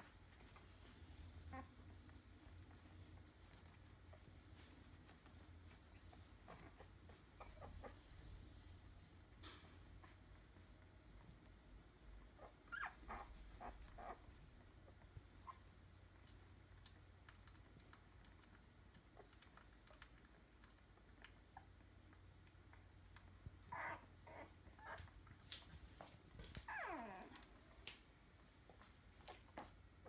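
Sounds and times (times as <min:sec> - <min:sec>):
puppy whimper: 0:00.3 - 0:04.9, 0:05.7 - 0:08.3, 0:12.3 - 0:15.7, 0:23.7 - 0:25.2, 0:26.0 - 0:27.6
puppies squeaking: 0:05.7 - 0:08.2, 0:12.4 - 0:14.3, 0:23.7 - 0:25.1, 0:26.6 - 0:27.4
small soft clicks: 0:16.1 - 0:23.6.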